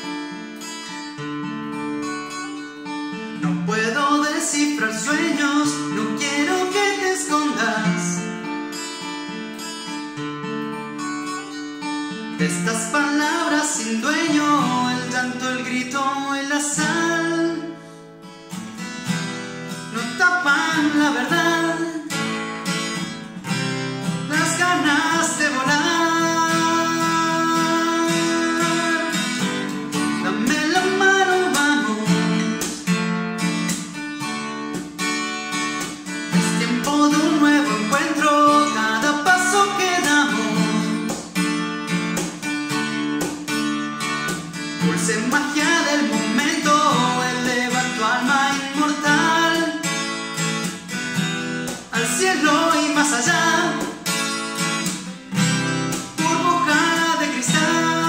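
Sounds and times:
acoustic guitar strummed: 0.0 - 58.0
man's voice: 3.4 - 8.2, 12.4 - 17.7, 19.9 - 22.1, 24.3 - 32.5, 36.4 - 41.0, 44.8 - 49.8, 51.9 - 53.8, 56.1 - 58.0.

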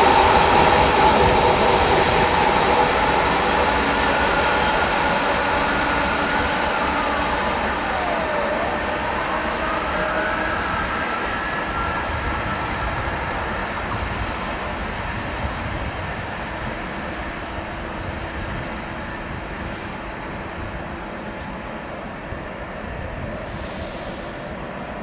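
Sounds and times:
electric traction whine: 0.0 - 14.1
train rumble: 0.0 - 25.0.

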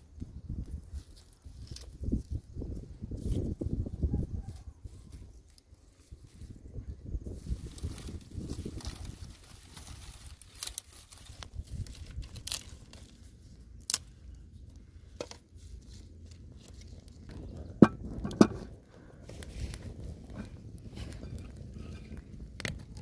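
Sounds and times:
wood fire crackling: 7.3 - 23.0
dry sticks snapping: 9.8 - 17.4
pot knocking on stones: 17.8 - 18.7.

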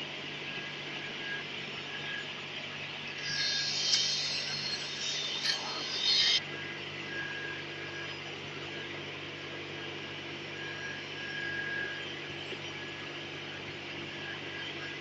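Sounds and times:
low mechanical hum with hiss: 0.0 - 15.0
faint high whistling tone: 1.0 - 8.8, 10.6 - 12.8.

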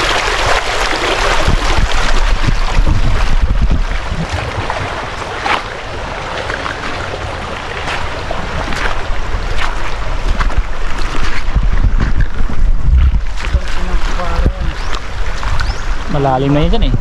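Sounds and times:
stream water over rocks: 0.0 - 16.7
wind rumbling on microphone: 0.0 - 17.0.

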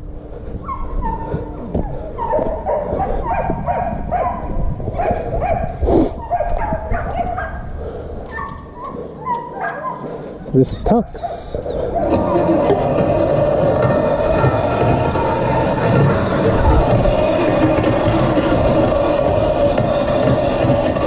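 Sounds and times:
dog yelping and whining: 0.6 - 7.6, 8.3 - 10.2, 11.2 - 12.8.

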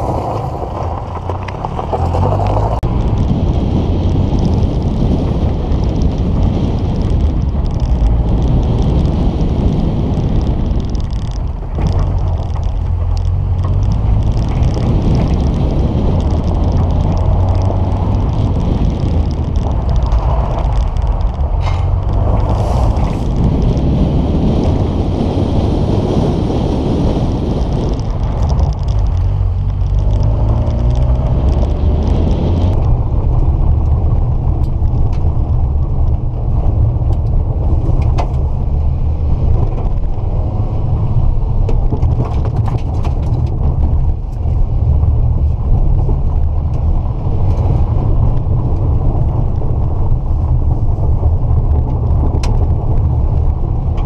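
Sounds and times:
car engine revving: 0.0 - 36.4.

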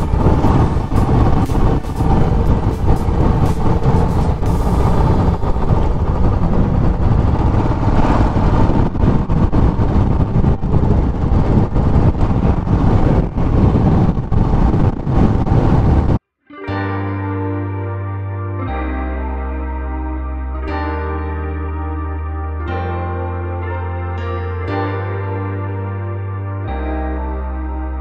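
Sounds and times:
motorcycle engine and road rumble: 0.0 - 16.2
wind rushing on microphone: 0.0 - 16.2.

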